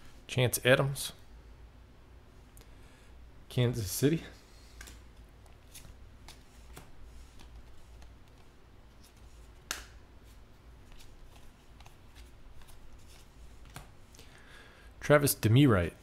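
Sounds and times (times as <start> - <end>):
cards sliding: 4.5 - 13.9
card snaps: 9.6 - 10.0.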